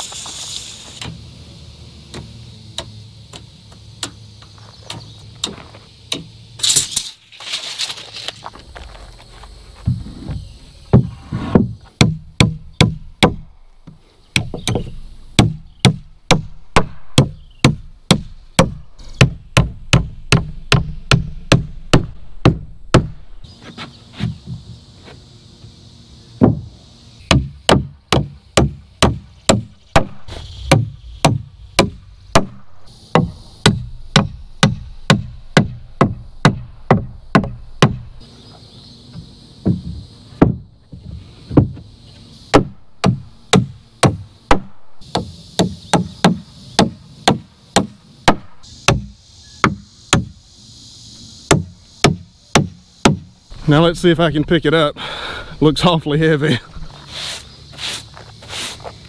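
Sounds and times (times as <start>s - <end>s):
hammer striking nails into wood: 11.0s - 13.4s, 14.4s - 23.2s, 27.3s - 38.1s, 42.5s - 50.3s, 51.5s - 53.2s.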